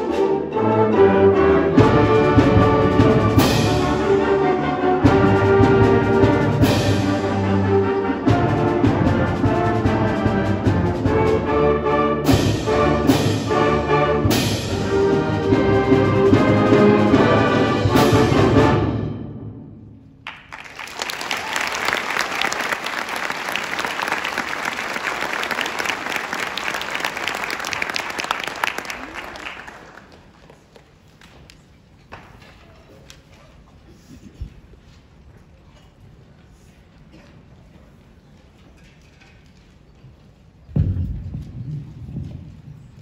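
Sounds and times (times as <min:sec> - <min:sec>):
concert band playing a march: 0:00.0 - 0:20.0
audience applause: 0:20.2 - 0:31.3.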